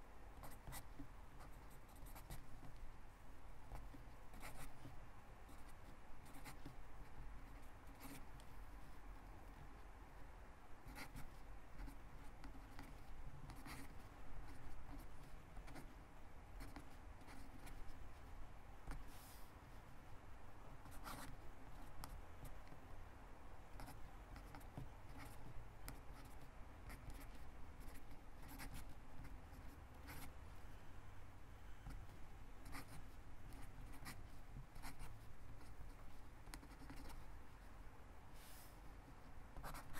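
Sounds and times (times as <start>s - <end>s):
pen scratching on paper: 0.4s - 2.8s, 3.7s - 8.5s, 10.8s - 16.0s, 16.6s - 18.0s, 20.8s - 22.8s, 23.8s - 30.3s, 32.6s - 37.3s, 39.6s - 39.9s.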